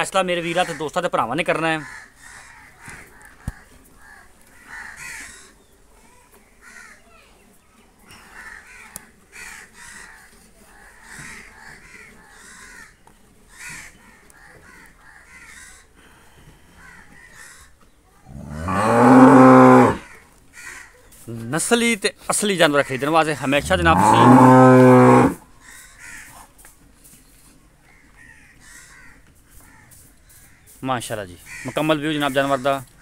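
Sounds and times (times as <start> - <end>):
cow mooing: 18.3 - 20.0, 23.6 - 25.4.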